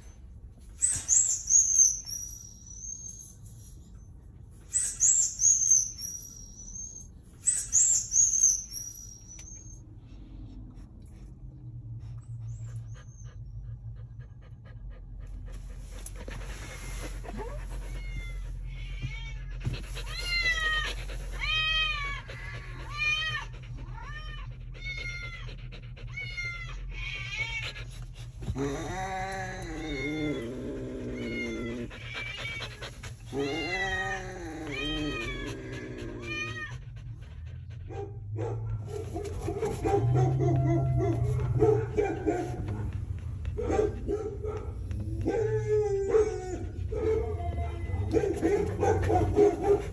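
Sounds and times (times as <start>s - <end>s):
recorded cat meowing: 17.4s - 25.5s, 28.5s - 36.8s.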